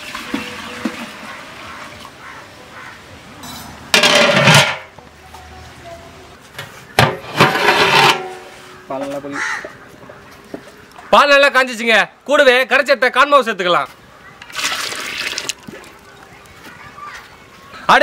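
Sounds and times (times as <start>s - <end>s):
metal lid clattering on a pot: 3.4s - 4.8s, 7.0s - 8.4s
milk pouring into a pot: 14.5s - 16.0s.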